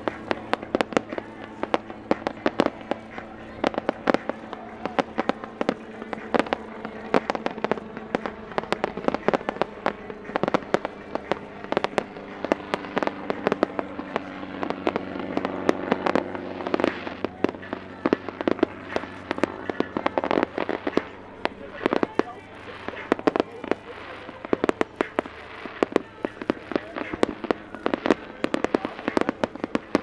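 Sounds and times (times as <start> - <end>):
fireworks bangs and pops: 0.0 - 30.0
steady hum: 0.0 - 30.0.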